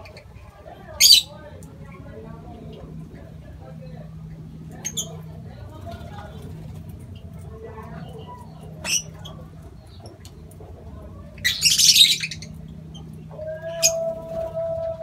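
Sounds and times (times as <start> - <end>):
lovebirds squawking harshly: 11.4 - 12.5.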